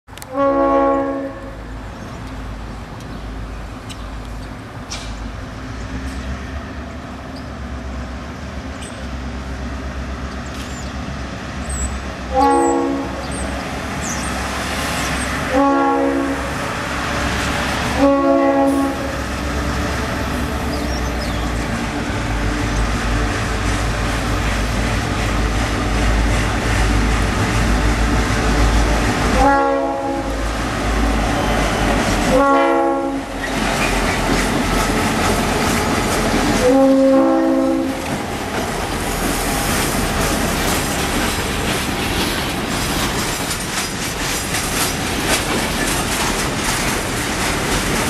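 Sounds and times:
diesel locomotive rumble: 0.1 - 48.0
train horn blasts: 0.2 - 1.7, 12.3 - 13.4, 15.4 - 16.7, 17.8 - 19.3, 29.2 - 30.5, 31.4 - 33.5, 36.5 - 38.0.

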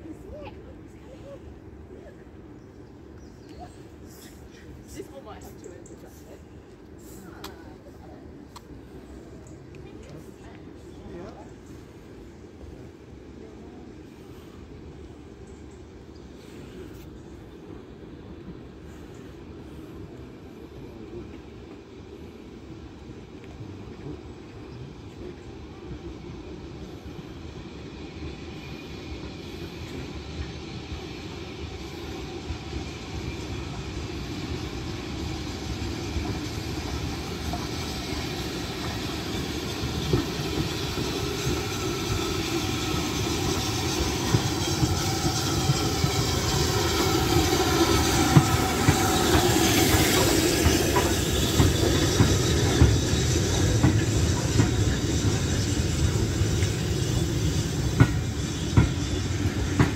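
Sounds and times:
steam train rolling past: 0.0 - 59.9
steam hissing: 21.8 - 59.9.

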